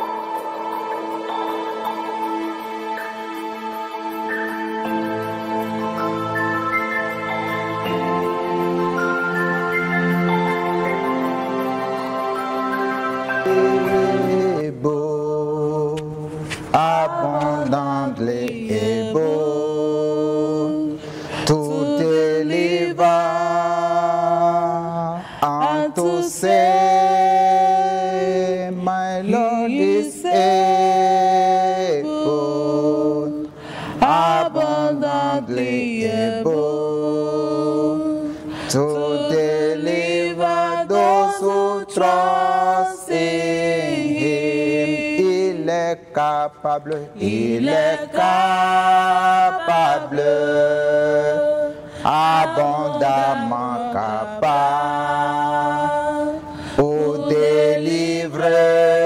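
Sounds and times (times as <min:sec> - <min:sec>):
man singing worship song: 0:13.4 - 0:59.0.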